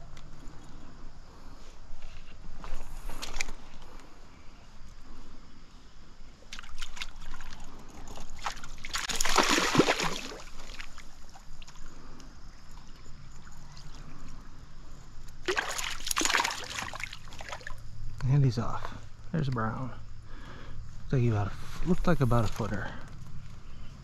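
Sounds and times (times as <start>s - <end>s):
stream water trickling: 6.4s - 18.1s
loud water splashes: 8.4s - 10.9s, 15.4s - 17.7s.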